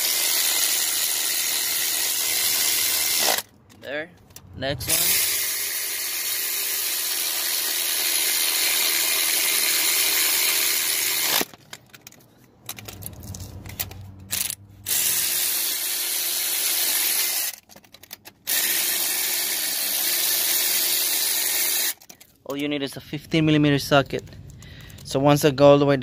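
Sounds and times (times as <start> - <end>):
electric ratchet motor running: 0.0 - 3.5, 4.9 - 11.5, 14.3 - 17.6, 18.4 - 22.0.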